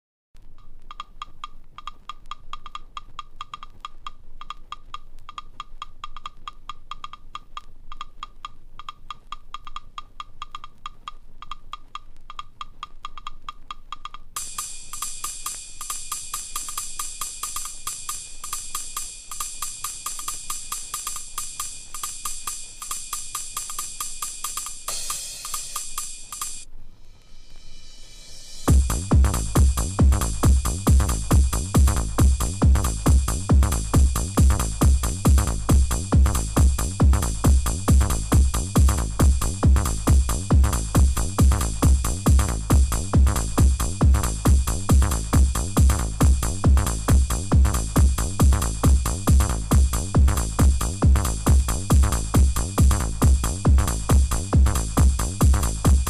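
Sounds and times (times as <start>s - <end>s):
clicking drum-machine percussion: 0.4s - 56.0s
hissing hi-hat: 14.3s - 56.0s.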